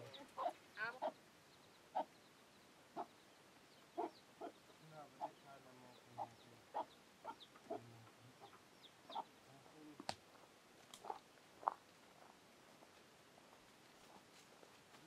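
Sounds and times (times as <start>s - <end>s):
hens clucking: 0.0s - 1.2s, 4.0s - 9.3s, 11.0s - 12.4s
chick peeping: 3.0s - 7.8s, 8.4s - 9.4s, 11.0s - 11.8s.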